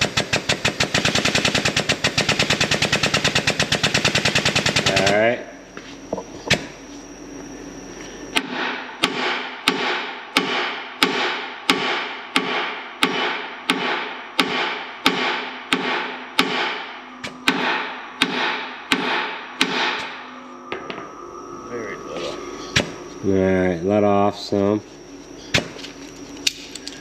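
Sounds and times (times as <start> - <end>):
hammer striking steel: 8.4 - 21.1.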